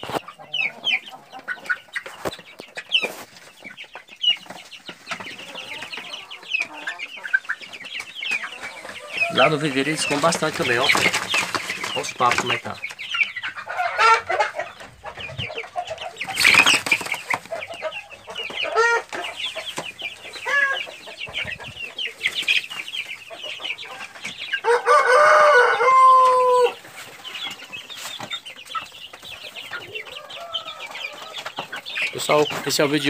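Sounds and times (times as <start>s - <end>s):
chicks peeping and chirping: 0.0s - 33.0s
rooster crowing: 8.7s - 9.8s, 24.6s - 26.8s.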